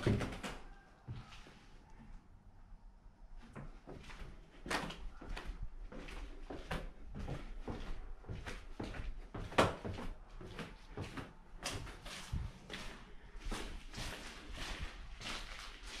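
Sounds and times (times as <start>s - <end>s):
footsteps on stairs: 3.4s - 16.0s.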